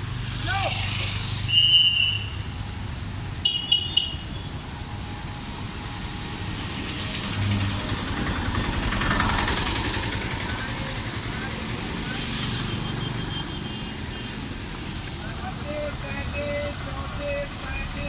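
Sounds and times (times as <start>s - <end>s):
road traffic: 0.0s - 18.0s
vehicle passing close: 4.2s - 18.0s.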